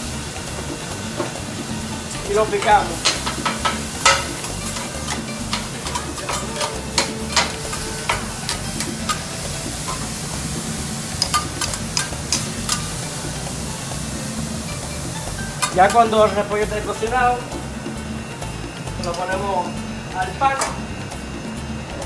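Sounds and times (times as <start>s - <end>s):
griddle sizzling: 0.0s - 22.0s
metal spatulas clacking: 2.2s - 10.4s, 11.0s - 13.4s, 15.5s - 17.0s.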